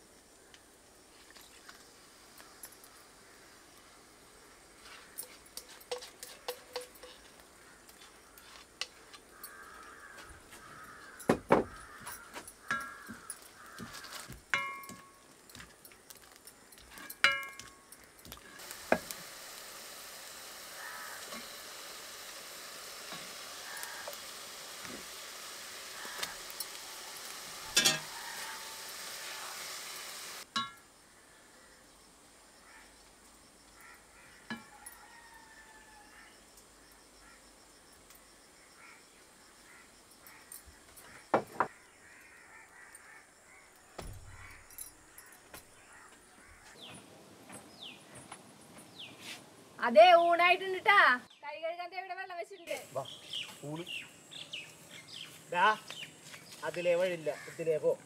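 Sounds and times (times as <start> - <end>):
sizzle of frying in oil: 4.6 - 30.8
short ringing clinks: 14.6 - 15.3.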